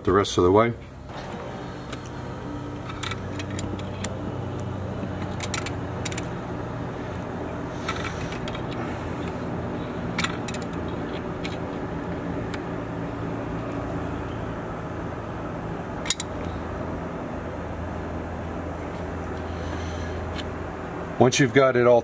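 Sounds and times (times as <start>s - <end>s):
low hum: 0.8s - 21.2s
pliers clicking on metal fitting: 16.0s - 16.3s.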